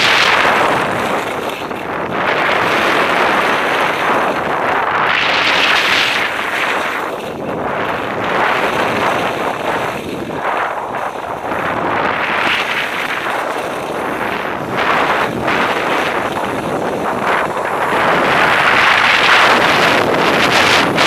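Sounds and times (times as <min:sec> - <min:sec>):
skis scraping over snow: 0:00.0 - 0:21.0
wind noise on microphone: 0:00.0 - 0:21.0.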